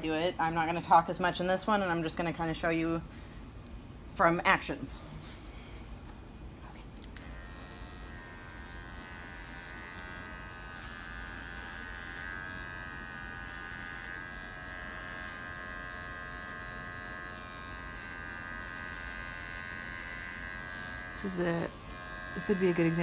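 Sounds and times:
electric pet clipper buzzing: 7.0 - 23.0.

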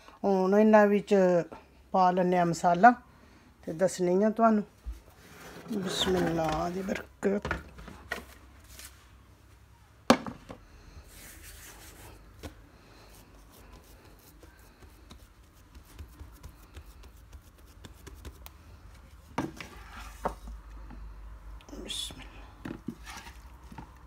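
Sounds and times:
hands patting dough: 13.2 - 19.4.

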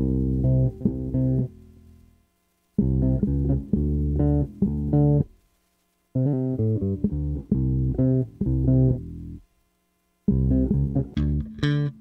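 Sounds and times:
electric bass plucked riff: 0.0 - 2.0, 2.8 - 5.3, 6.2 - 9.4, 10.2 - 12.0.

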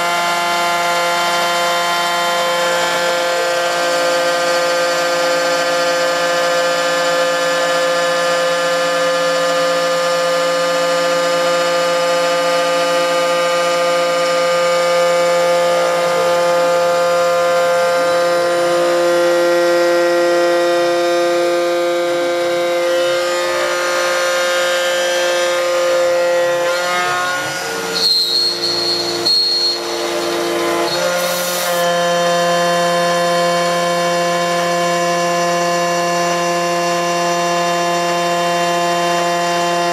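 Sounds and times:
milling machine whine: 22.6 - 32.1.

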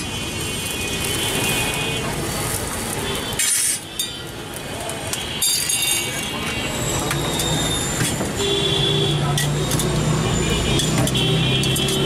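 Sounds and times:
street traffic: 0.0 - 12.0
metal spatula scraping griddle: 3.2 - 4.2, 9.3 - 12.0.

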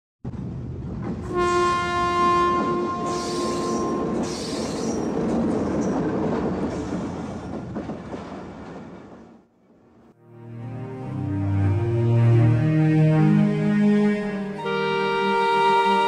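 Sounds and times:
held horn-like tone: 1.3 - 4.7, 10.3 - 16.0.

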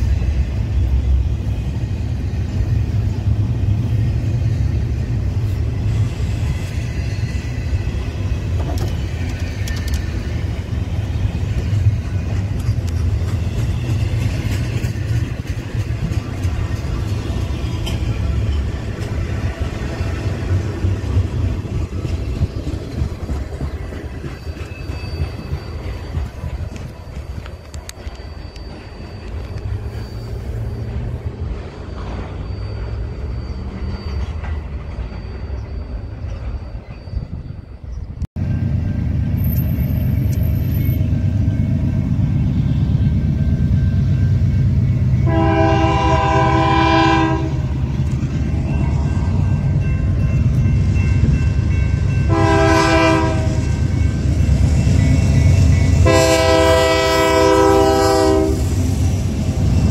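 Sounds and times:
train rumbling past: 0.0 - 59.9
locomotive air horn blasts: 45.2 - 47.8, 52.3 - 53.7, 56.0 - 58.8.

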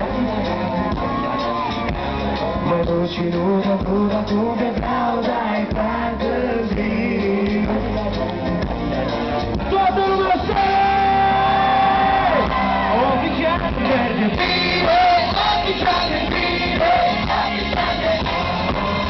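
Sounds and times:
live band music: 0.0 - 19.0
man singing through pa: 2.6 - 8.3, 12.9 - 19.0.

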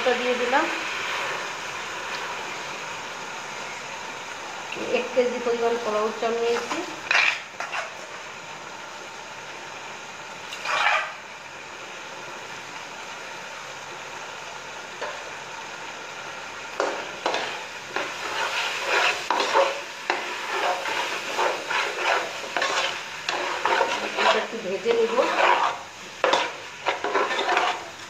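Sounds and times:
rice sizzling in hot oil: 0.0 - 28.0
metal spatula scraping pot: 7.0 - 8.0, 10.5 - 11.2, 16.8 - 28.0.

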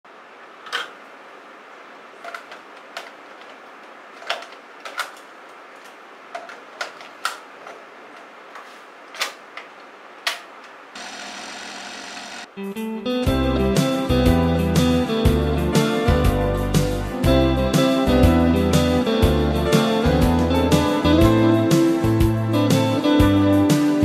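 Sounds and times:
tape deck hum and hiss: 0.1 - 24.0.

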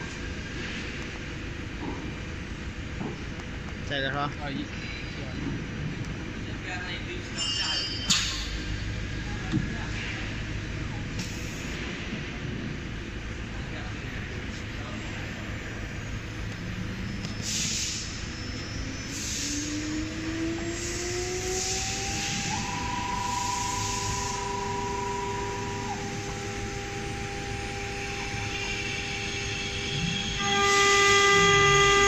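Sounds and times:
short hissing bursts: 17.4 - 18.2
spindle motors whining: 18.1 - 32.0.

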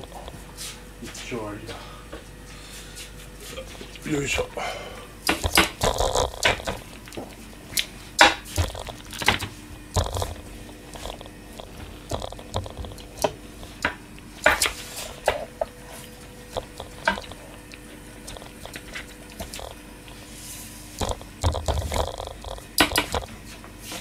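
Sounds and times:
faint steady hum: 0.0 - 24.0
kitchen items knocking and clicking: 5.3 - 6.9, 8.2 - 15.5, 16.6 - 17.4, 21.0 - 23.3.

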